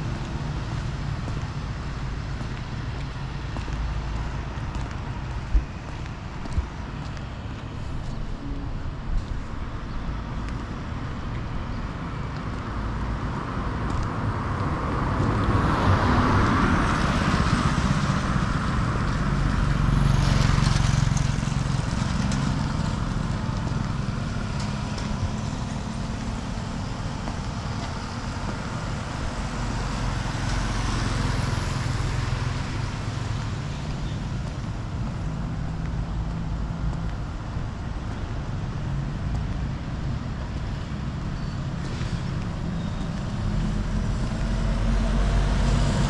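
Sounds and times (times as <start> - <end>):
street noise: 0.0 - 46.0
motorbikes passing on wet street: 13.0 - 41.2, 41.8 - 46.0.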